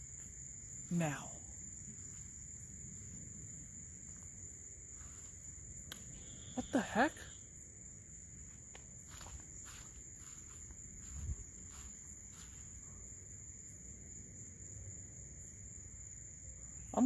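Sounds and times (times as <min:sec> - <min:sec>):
night insects trilling: 0:00.0 - 0:17.0
faint rustling in grass: 0:04.2 - 0:06.6, 0:08.3 - 0:13.5.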